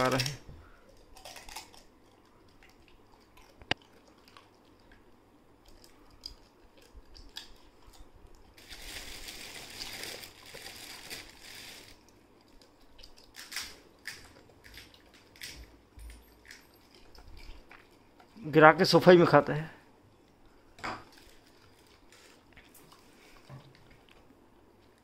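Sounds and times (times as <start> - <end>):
dog chewing crunchy snack: 0.0 - 15.8.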